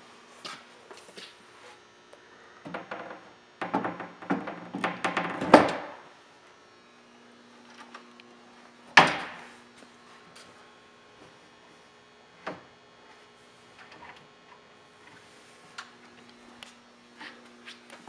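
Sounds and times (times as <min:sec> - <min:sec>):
wooden cabinet panels knocking: 0:03.6 - 0:06.0.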